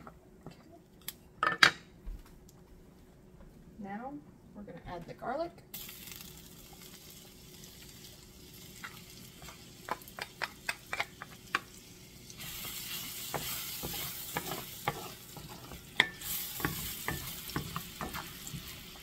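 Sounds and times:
garlic and butter sizzling: 5.7 - 19.0
wooden spatula scraping pan: 13.3 - 15.8.

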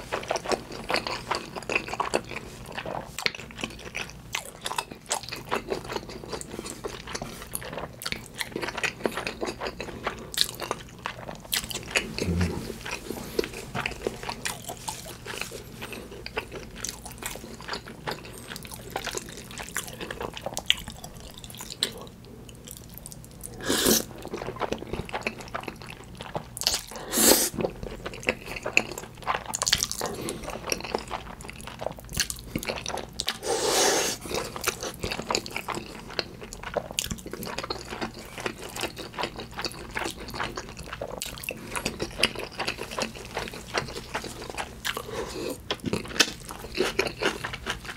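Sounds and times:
wet chewing and smacking: 0.0 - 23.5, 24.1 - 33.5, 34.2 - 47.9.

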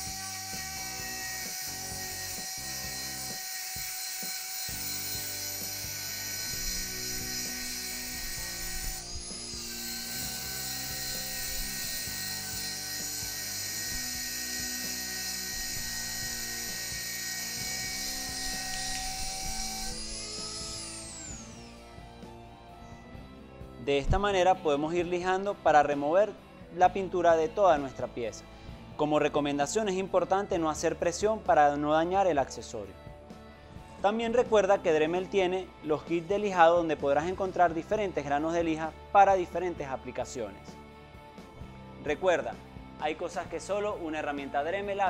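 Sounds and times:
rotary tool high whine with scratching: 0.0 - 23.2.

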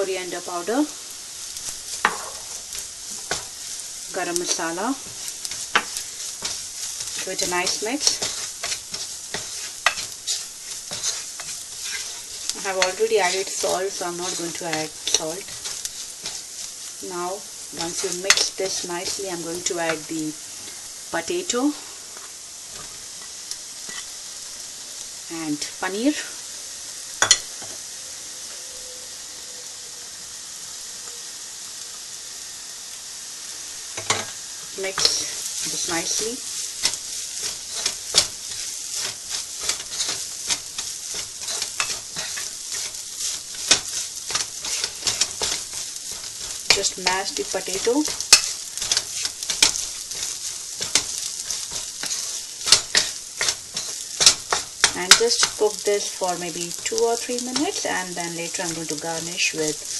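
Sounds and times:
food sizzling in hot oil: 0.0 - 59.9
spatula stirring and mashing: 1.4 - 20.9, 34.0 - 59.9.

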